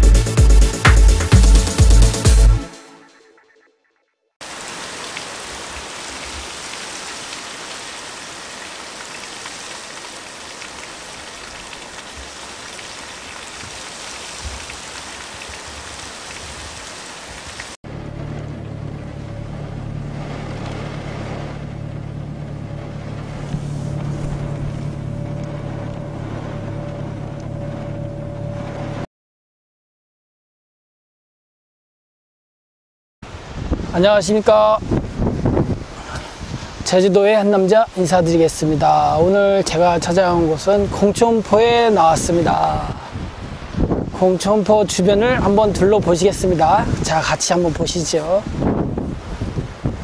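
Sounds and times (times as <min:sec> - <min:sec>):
rain falling: 0:04.4 - 0:28.8
low hum: 0:17.9 - 0:29.1.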